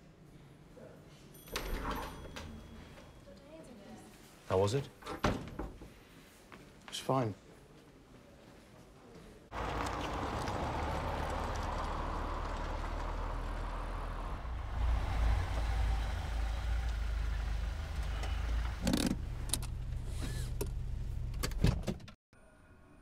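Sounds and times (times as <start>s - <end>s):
car engine and road rumble: 9.5s - 21.6s.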